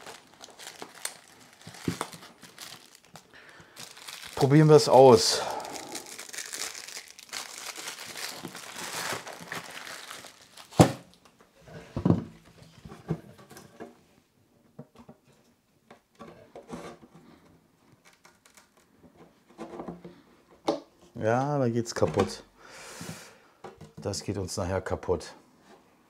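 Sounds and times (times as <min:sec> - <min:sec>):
fabric roll rustling and crinkling: 0:00.0 - 0:03.2, 0:03.8 - 0:11.1.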